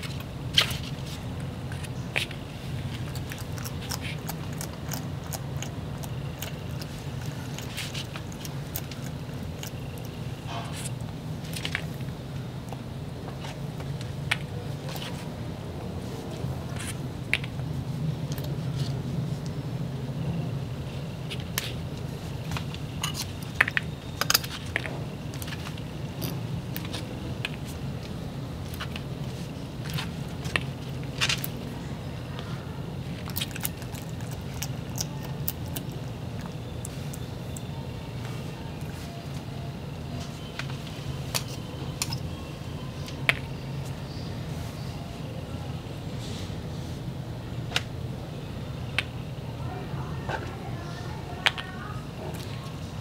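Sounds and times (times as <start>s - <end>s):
steady low hum: 0.0s - 53.0s
lizard chewing crunching clicks: 2.9s - 11.6s, 33.2s - 37.7s.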